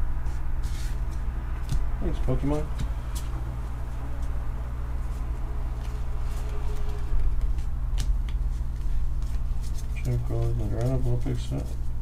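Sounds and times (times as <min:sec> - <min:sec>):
steady low hum: 0:00.0 - 0:12.0
cards being handled: 0:05.1 - 0:12.0.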